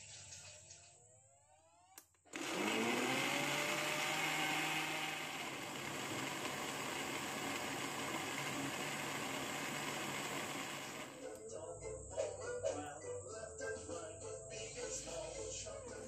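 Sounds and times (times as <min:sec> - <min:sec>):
blender motor whining: 0:01.9 - 0:11.4.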